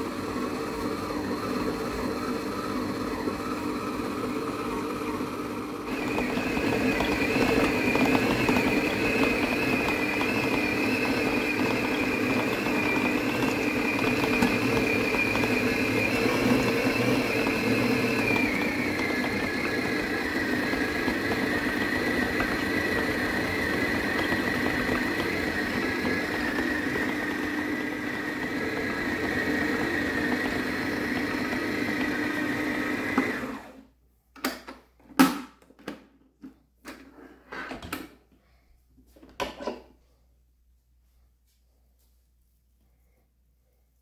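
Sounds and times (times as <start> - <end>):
blender motor running: 0.0 - 33.8.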